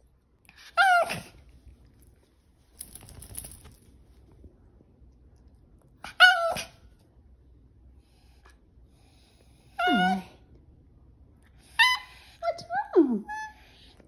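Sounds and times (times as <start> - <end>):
small dog whining: 0.6 - 1.4, 6.0 - 6.8, 9.8 - 10.4, 11.6 - 12.4.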